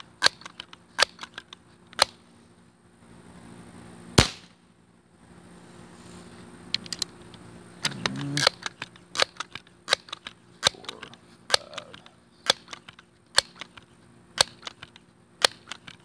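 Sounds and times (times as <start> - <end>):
gun handling clicks: 0.2 - 2.2, 6.7 - 16.0
air pistol shot: 4.2 - 4.6.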